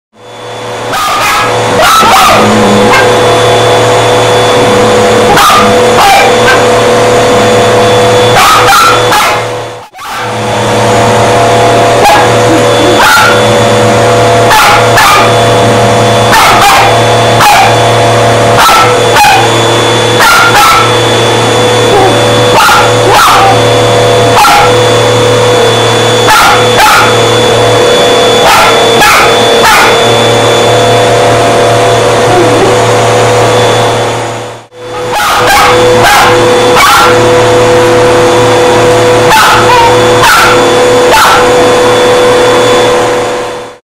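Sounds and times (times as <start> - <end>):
vacuum cleaner motor hum: 0.1 - 43.8
small dog barking and yipping: 0.9 - 10.4, 11.8 - 25.0, 25.6 - 30.6, 35.0 - 37.5, 39.2 - 41.8.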